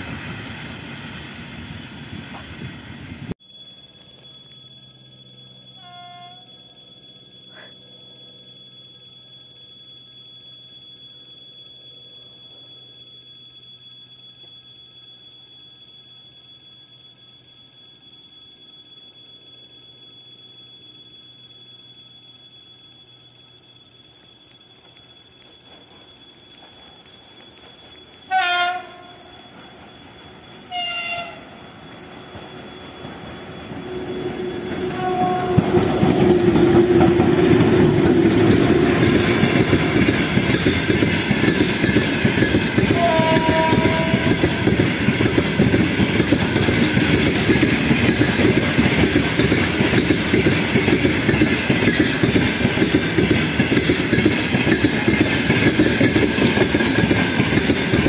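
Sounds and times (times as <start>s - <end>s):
freight train rumble and wheel clatter: 0.0s - 3.4s, 24.2s - 58.0s
locomotive horn blasts: 5.8s - 6.5s, 28.3s - 29.2s, 30.7s - 31.5s, 34.8s - 35.8s, 42.9s - 44.6s.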